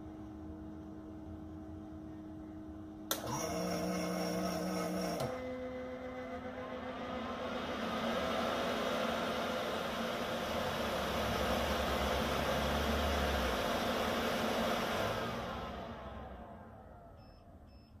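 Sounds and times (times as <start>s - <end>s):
drying fan blowing: 0.0s - 17.2s
electronic beep: 17.2s - 18.0s.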